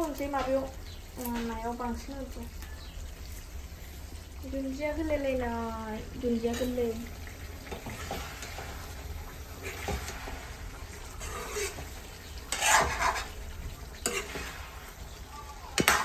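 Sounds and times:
wooden spatula scraping pan: 7.6 - 9.0, 9.6 - 15.0.

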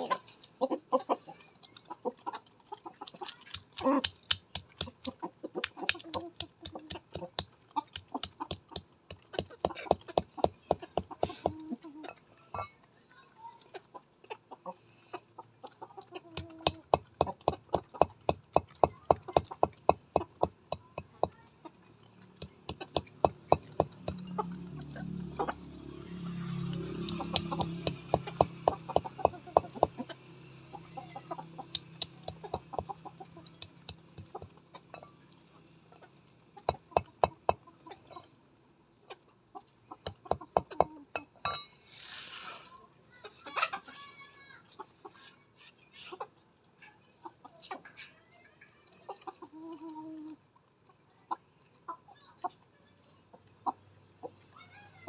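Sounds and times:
chickens clucking: 0.0 - 12.9, 13.6 - 26.0, 27.0 - 41.4, 42.8 - 48.2, 48.9 - 52.6
beaks tapping hard ground: 1.4 - 11.7, 16.3 - 24.5, 27.0 - 30.0, 31.6 - 34.6, 36.6 - 37.6, 40.0 - 41.0.

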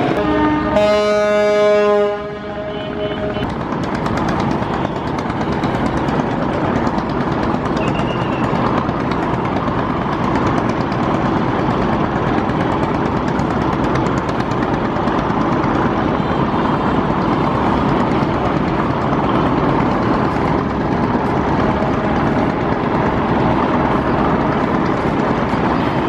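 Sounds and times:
boat horn blast: 0.0 - 3.5
boat engine and churning water: 0.0 - 26.0.

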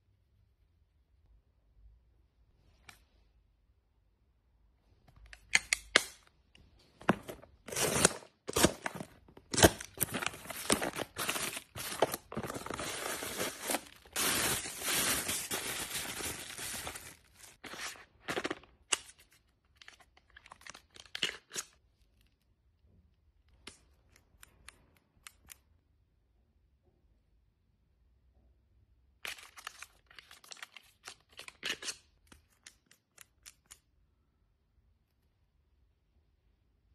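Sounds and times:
bubble wrap crinkling and tearing: 7.3 - 21.6.

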